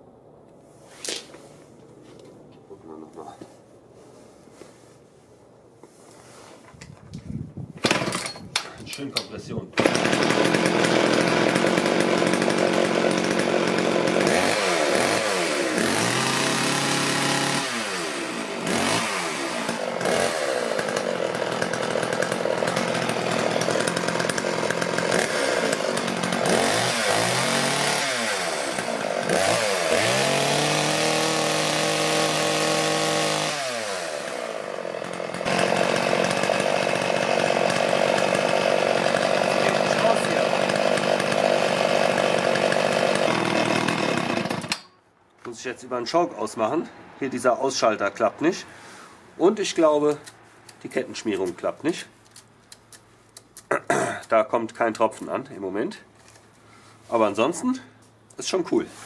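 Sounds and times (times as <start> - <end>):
chainsaw revving: 7.8 - 8.3, 9.8 - 44.9.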